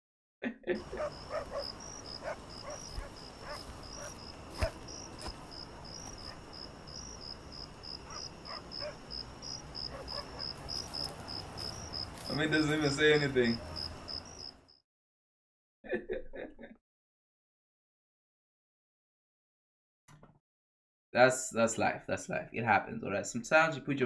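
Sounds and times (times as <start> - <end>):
crickets chirping: 0.8 - 14.8.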